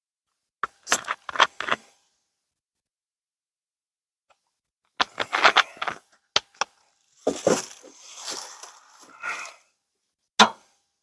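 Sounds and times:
dry leaves crunching: 0:07.2 - 0:09.0.

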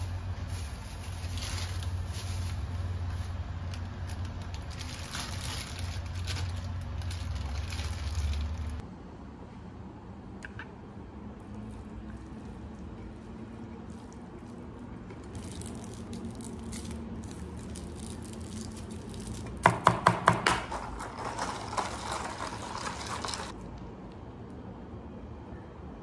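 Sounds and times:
plastic bag rustling and crinkling: 0:00.0 - 0:08.8, 0:11.6 - 0:19.7, 0:20.7 - 0:23.6
sharp plastic crackles: 0:00.4 - 0:08.8, 0:13.8 - 0:23.9.

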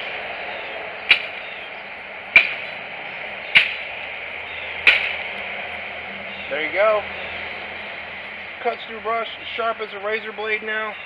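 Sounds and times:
machete chopping brush stems: 0:01.1 - 0:01.7, 0:02.4 - 0:02.8, 0:03.5 - 0:04.1, 0:04.8 - 0:05.4.

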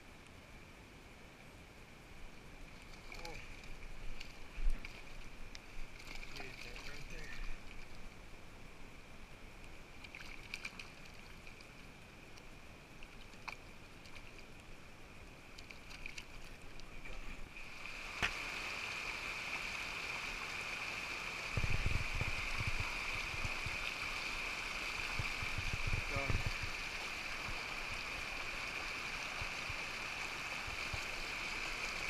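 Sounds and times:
creek water rushing over rocks: 0:02.3 - 0:32.0
small water splashes: 0:05.9 - 0:08.1, 0:09.9 - 0:11.9, 0:12.9 - 0:14.7, 0:15.4 - 0:20.7.

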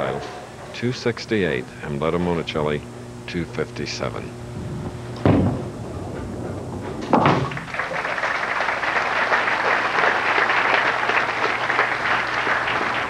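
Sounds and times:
bowling ball crashing into pins: 0:05.2 - 0:08.4
crowd applauding: 0:07.3 - 0:13.0.

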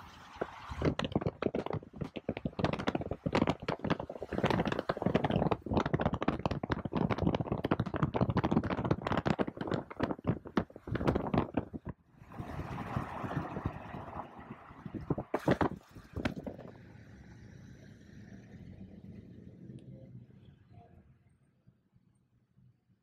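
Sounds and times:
rapid clicking and crackling: 0:00.1 - 0:14.0, 0:14.8 - 0:16.8.

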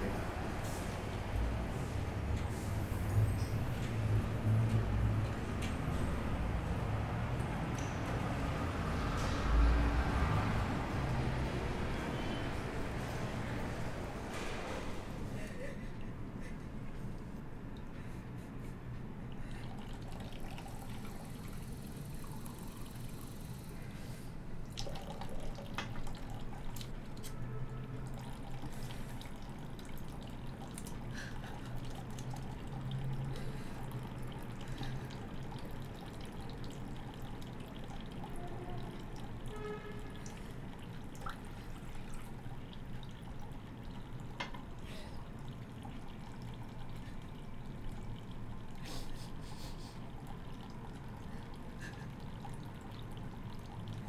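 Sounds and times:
water dripping: 0:06.7 - 0:13.7, 0:19.2 - 0:23.7, 0:24.6 - 0:48.8, 0:50.0 - 0:54.0.

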